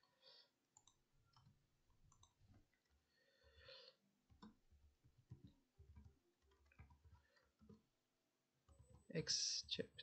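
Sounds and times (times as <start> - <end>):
keyboard typing clicks: 0.7 - 3.0.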